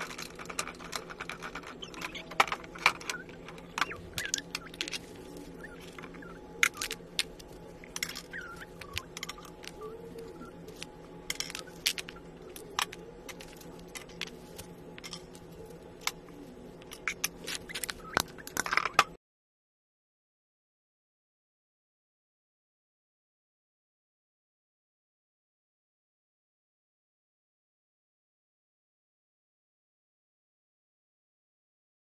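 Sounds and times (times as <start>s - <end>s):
wooden toys clicking and knocking: 0.0s - 16.2s, 16.8s - 19.2s.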